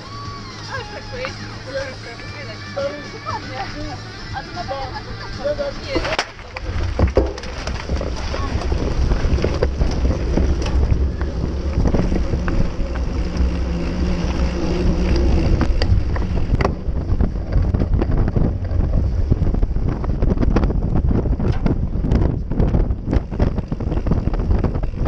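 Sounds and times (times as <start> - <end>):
wind buffeting microphone: 0.5 - 25.0
bike rattling and knocking: 5.4 - 25.0.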